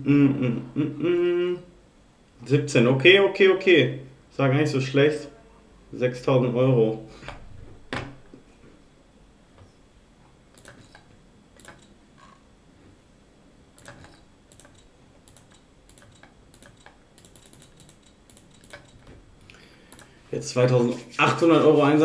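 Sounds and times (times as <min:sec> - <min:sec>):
computer mouse clicking: 0:10.5 - 0:11.9, 0:13.8 - 0:19.1, 0:19.9 - 0:20.2.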